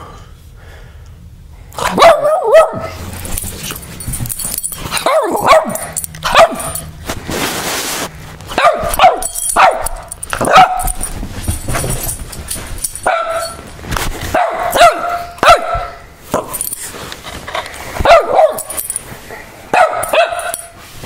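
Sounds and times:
dog barking angrily: 0:01.8 - 0:03.2, 0:04.9 - 0:06.9, 0:08.5 - 0:11.1, 0:13.0 - 0:13.6, 0:14.3 - 0:16.6, 0:18.0 - 0:18.8, 0:19.6 - 0:20.8.

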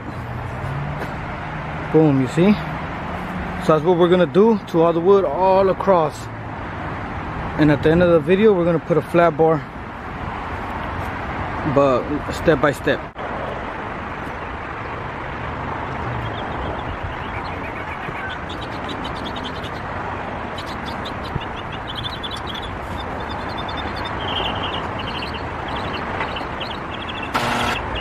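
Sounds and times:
distant traffic hum: 0:00.0 - 0:28.0
loud noise: 0:27.3 - 0:28.0.

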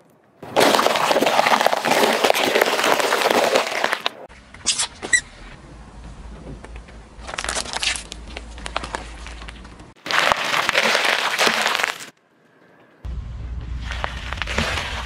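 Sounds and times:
plastic tub crackling under tyre: 0:00.4 - 0:04.3, 0:07.2 - 0:12.2
tyre crushing lettuce: 0:10.0 - 0:12.1
low rumble: 0:13.1 - 0:15.0.

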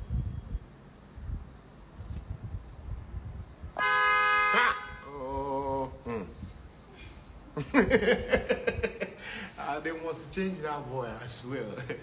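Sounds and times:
loud horn blast: 0:03.8 - 0:05.1.

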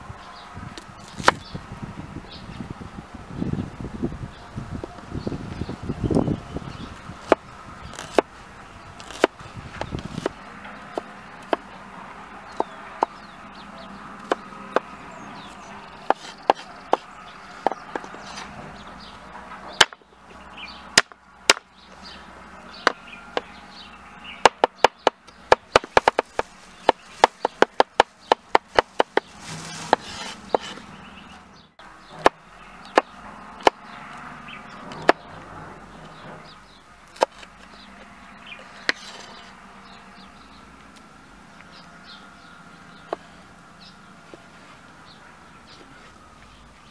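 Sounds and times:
knife chopping on wooden board: 0:09.0 - 0:09.3, 0:16.0 - 0:18.5, 0:24.4 - 0:30.8.

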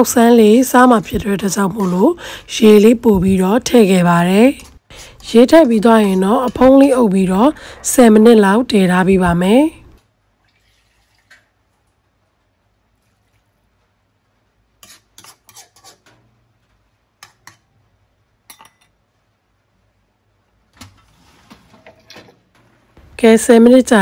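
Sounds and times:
metal ladle scraping wok: 0:14.8 - 0:16.1.

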